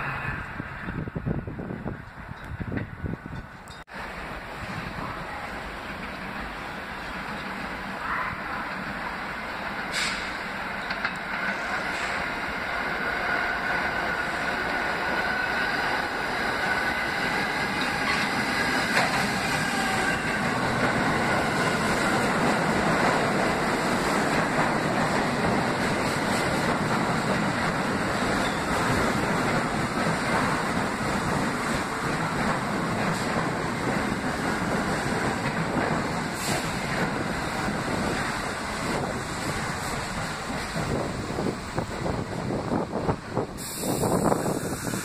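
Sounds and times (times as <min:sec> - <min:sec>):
train wheels rumbling and clacking: 0:00.0 - 0:45.0
high wheel squeal: 0:28.4 - 0:28.8.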